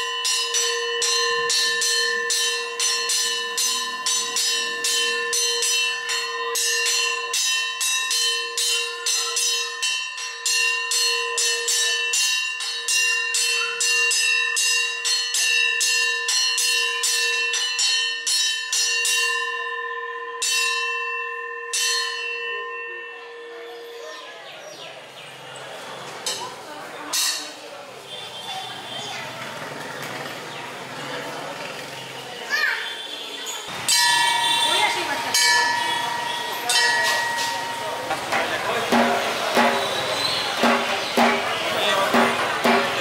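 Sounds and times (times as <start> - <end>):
metal plate gong struck: 33.9 - 43.0.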